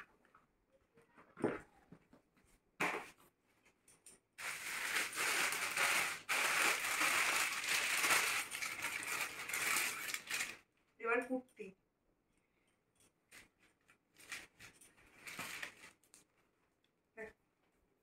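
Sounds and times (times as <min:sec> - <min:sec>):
plastic bag crinkling: 0:04.4 - 0:10.7, 0:13.3 - 0:16.2.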